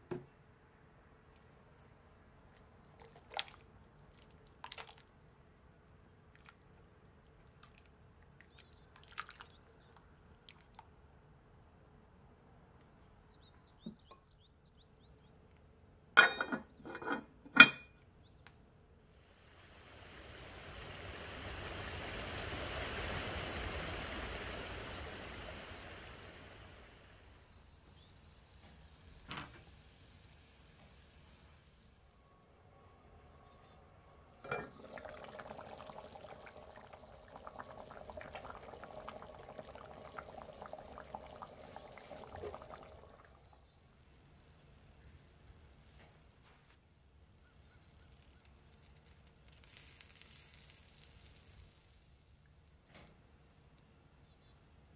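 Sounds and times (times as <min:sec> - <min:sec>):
stew bubbling: 0:02.9 - 0:05.2, 0:06.3 - 0:11.0, 0:34.4 - 0:43.7
soft hiss: 0:18.2 - 0:54.9.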